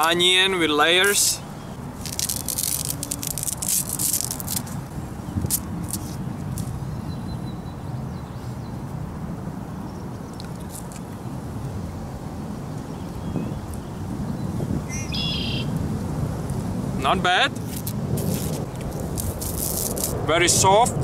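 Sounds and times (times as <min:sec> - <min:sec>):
plant stalk crackling and tearing: 0:01.9 - 0:06.8, 0:17.6 - 0:20.3
stalk snapping: 0:02.0 - 0:04.8, 0:05.4 - 0:06.7, 0:17.7 - 0:20.2
steady low rumble: 0:15.7 - 0:21.0.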